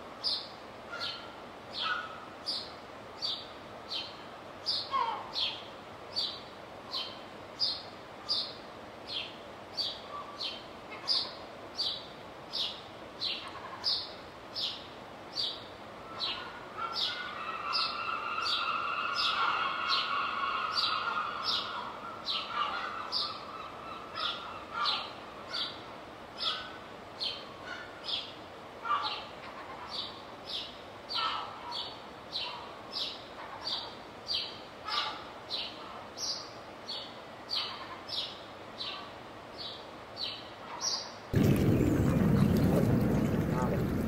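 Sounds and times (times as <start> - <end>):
songbird chirping: 35.6 - 44.0.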